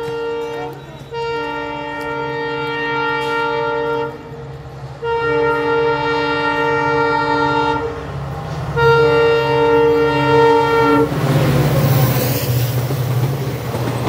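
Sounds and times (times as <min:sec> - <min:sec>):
locomotive air horn blasts: 0:00.0 - 0:04.4, 0:05.0 - 0:08.0, 0:08.8 - 0:11.2.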